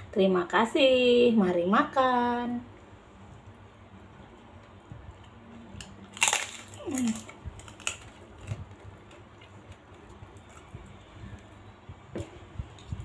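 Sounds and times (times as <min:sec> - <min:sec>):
crackers crunching: 0:04.6 - 0:11.1
chewing crunches: 0:05.7 - 0:10.8.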